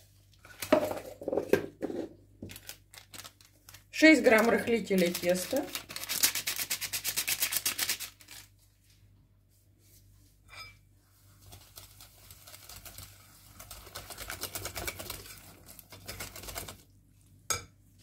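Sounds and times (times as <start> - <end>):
whisk beating batter in glass bowl: 11.2 - 16.9.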